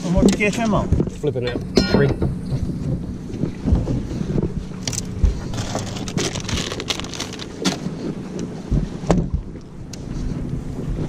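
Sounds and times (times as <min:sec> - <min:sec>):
steady low hum: 0:00.0 - 0:11.0
gear knocking and thumping: 0:00.2 - 0:08.0
plastic bag crinkling: 0:04.9 - 0:07.8.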